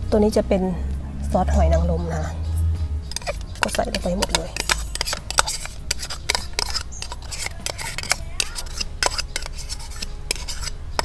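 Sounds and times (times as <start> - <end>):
metal spoon scraping a bowl: 1.5 - 11.0
spoon clinking against bowl: 3.1 - 11.0.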